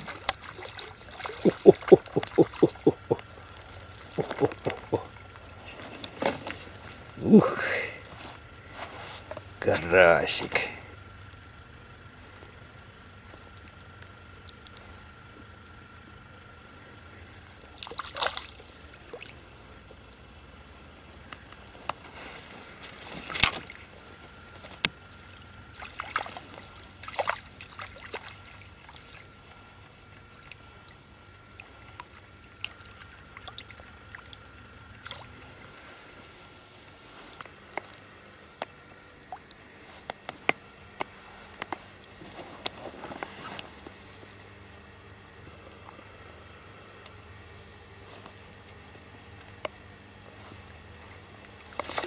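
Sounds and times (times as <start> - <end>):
water splashing at bank: 0.0 - 5.3, 17.7 - 19.4, 25.3 - 29.4, 31.5 - 35.8.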